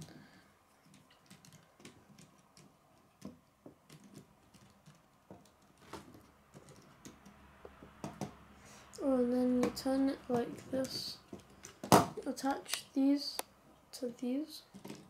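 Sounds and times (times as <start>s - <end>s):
plastic toy pieces clicking: 0.8s - 5.8s.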